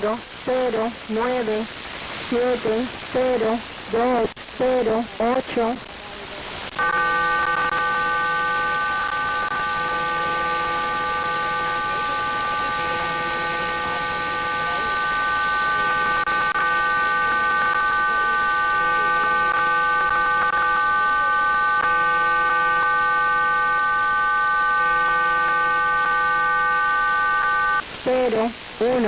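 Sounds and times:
radio static hiss: 0:00.0 - 0:29.0
steady data tones: 0:06.6 - 0:28.6.

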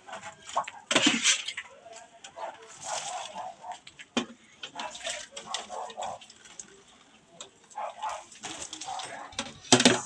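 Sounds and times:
water splashing onto plants: 0:04.8 - 0:06.8.

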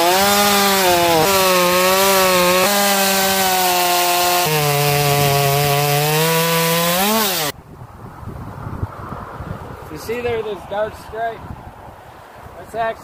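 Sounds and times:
chainsaw cutting log: 0:00.0 - 0:07.5.

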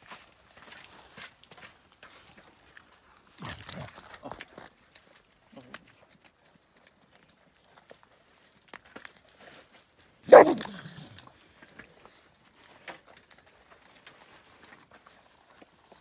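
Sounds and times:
dog barking: 0:10.3 - 0:10.9.

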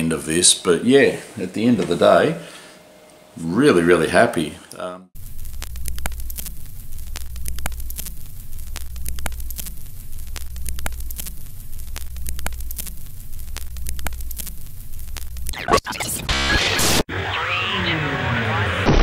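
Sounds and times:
low hum: 0:05.2 - 0:15.6
sharp clicks: 0:05.2 - 0:15.6
static crackle and pops: 0:05.2 - 0:17.1.

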